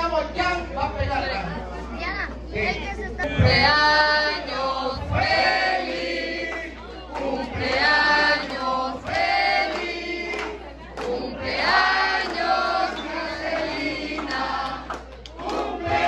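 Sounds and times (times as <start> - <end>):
group of people singing: 3.2 - 16.0.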